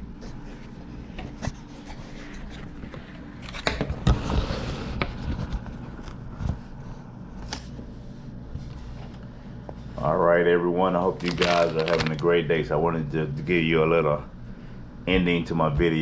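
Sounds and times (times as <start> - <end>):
scraping on microphone: 4.0 - 7.0.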